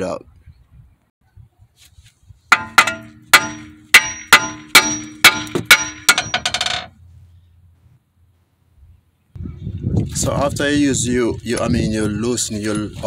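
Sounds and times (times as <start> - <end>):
hammer clanging on steel: 2.5 - 7.0.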